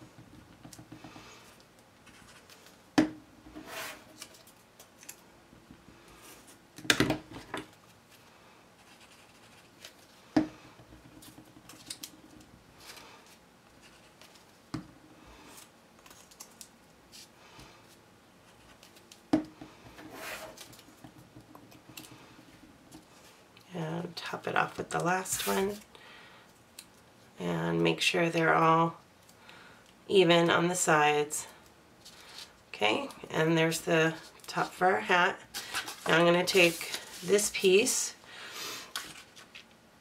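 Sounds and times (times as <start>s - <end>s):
paper rustling and scraping: 35.6s - 37.6s.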